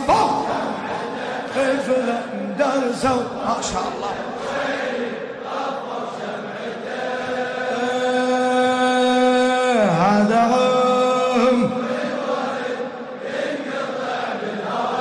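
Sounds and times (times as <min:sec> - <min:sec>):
man chanting unaccompanied: 0:00.0 - 0:04.4, 0:07.7 - 0:12.0.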